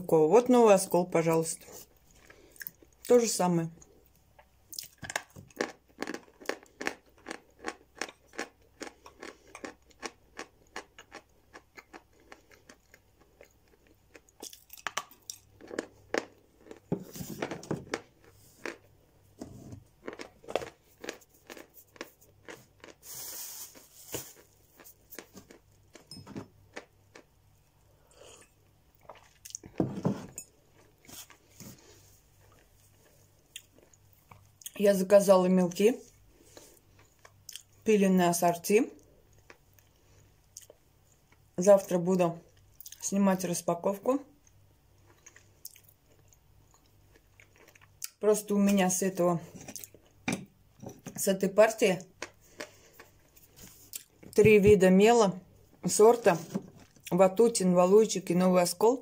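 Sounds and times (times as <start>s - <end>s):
chalk being chewed crunching: 5.5s - 16.9s, 20.0s - 26.1s.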